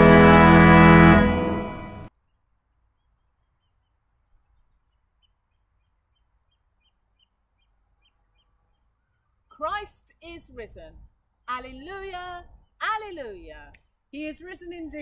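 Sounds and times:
small bird chirping: 2.2 - 9.6, 10.6 - 12.8.

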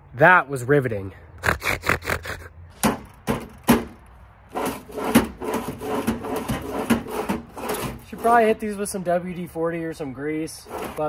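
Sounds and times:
metal drawer clicks and knocks: 2.8 - 8.0
metal drawer scraping slide: 2.8 - 8.6, 10.6 - 11.0.

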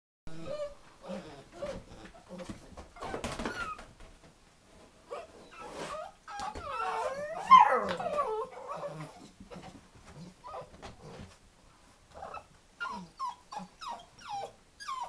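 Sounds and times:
puppies whining and yelping: 0.3 - 2.0, 3.0 - 3.8, 5.1 - 10.7, 12.2 - 15.0
high wavering puppy cries: 6.0 - 9.3, 12.2 - 15.0.

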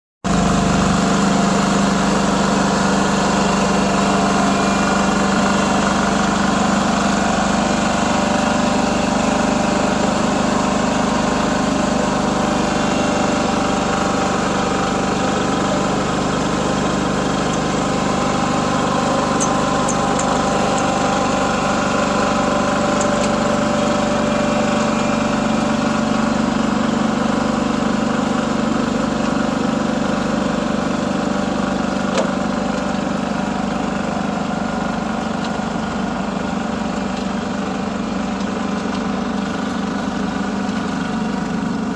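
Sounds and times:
paver engine humming: 0.3 - 30.2.

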